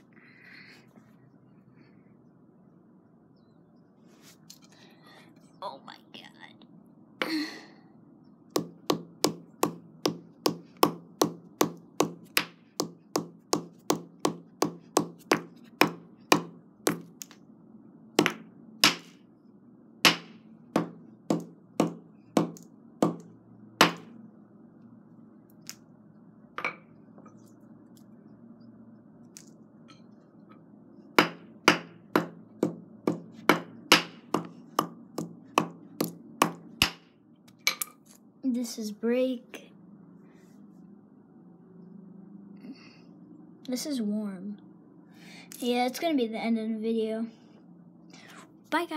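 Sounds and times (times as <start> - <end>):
hammer striking on concrete: 31.2 - 37.0.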